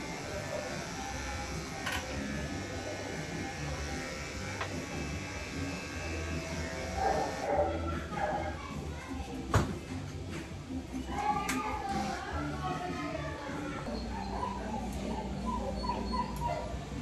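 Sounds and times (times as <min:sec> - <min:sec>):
electric clippers buzzing: 0:00.0 - 0:07.8, 0:11.9 - 0:12.3.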